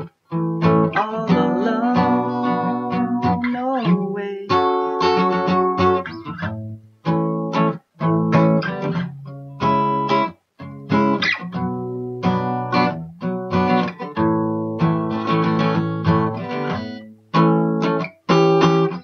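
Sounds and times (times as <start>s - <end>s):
acoustic guitar strumming chords: 0.0s - 19.0s.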